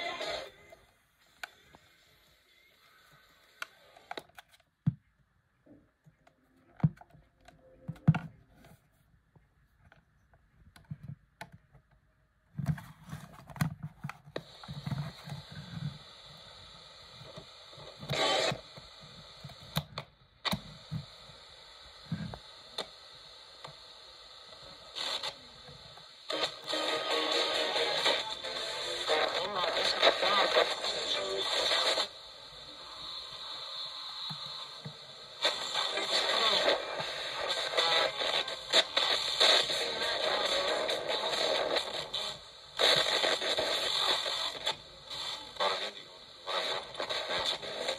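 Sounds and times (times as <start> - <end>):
radio static hiss: 0.0 - 4.4, 14.1 - 47.9.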